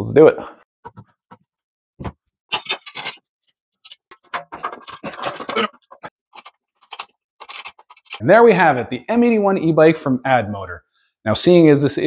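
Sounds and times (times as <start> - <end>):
clicks and scrapes of bike parts: 2.5 - 8.2.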